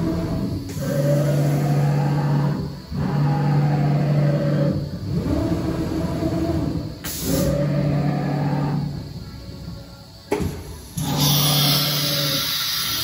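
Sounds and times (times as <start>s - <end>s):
compressed air hiss: 7.0s - 7.7s, 10.4s - 13.0s.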